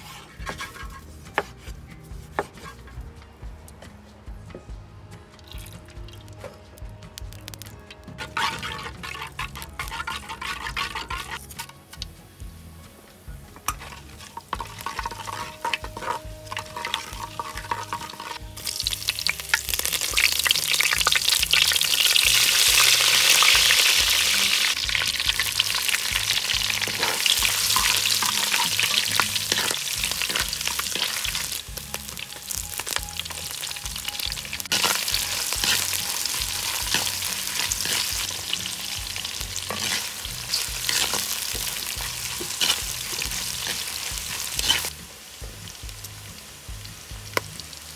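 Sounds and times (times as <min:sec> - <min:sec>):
spices sizzling in hot oil: 0:00.0 - 0:02.8, 0:05.5 - 0:47.9
spoon scraping a clay pot: 0:00.0 - 0:03.0, 0:08.2 - 0:11.7, 0:13.7 - 0:18.4, 0:20.7 - 0:31.6, 0:33.9 - 0:44.9.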